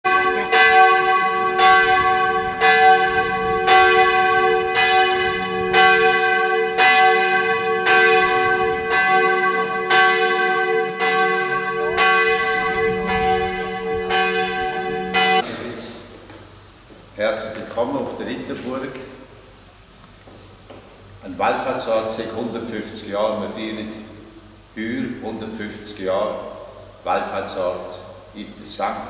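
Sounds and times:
church bell tolling: 0.0 - 15.4.

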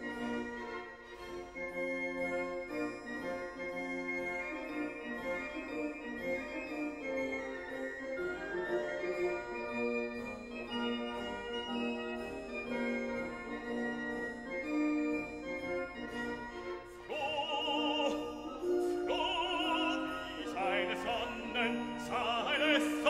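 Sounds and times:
sustained organ-like chords: 10.0 - 23.0
operatic singing with vibrato: 16.9 - 23.0.

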